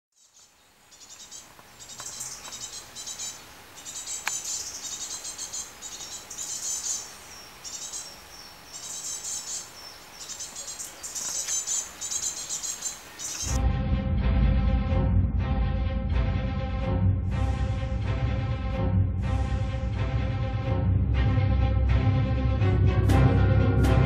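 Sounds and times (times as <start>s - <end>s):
insects trilling: 0.2s - 13.6s.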